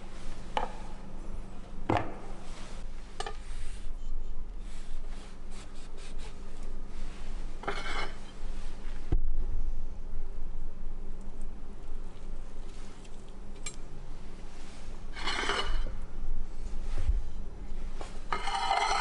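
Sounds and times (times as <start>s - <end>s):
steady low hum: 0.0s - 19.0s
knife scraping on cutting board: 7.6s - 8.4s, 15.1s - 15.9s.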